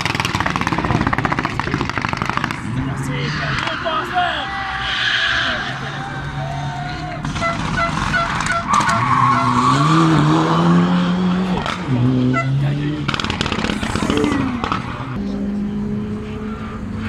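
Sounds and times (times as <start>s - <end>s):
rally car engine revving: 0.0s - 17.0s
tyres skidding: 0.0s - 17.0s.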